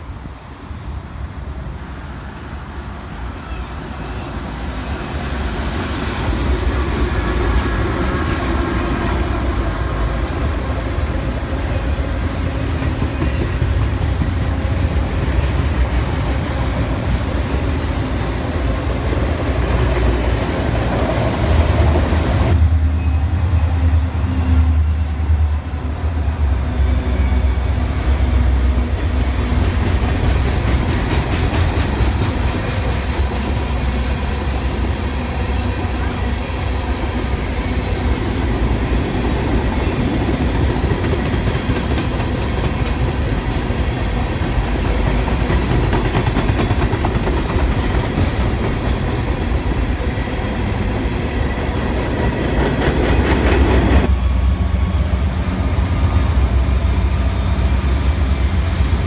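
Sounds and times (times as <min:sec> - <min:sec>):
diesel locomotive engine rumble: 0:00.0 - 0:59.0
train wheels clattering on rails: 0:06.0 - 0:22.6, 0:28.2 - 0:34.5, 0:38.0 - 0:59.0.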